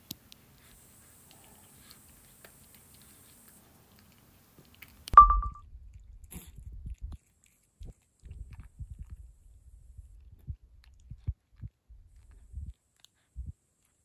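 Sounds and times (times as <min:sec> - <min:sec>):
cat chewing and licking: 0:00.0 - 0:14.0
brief ringing beep: 0:05.2 - 0:05.6.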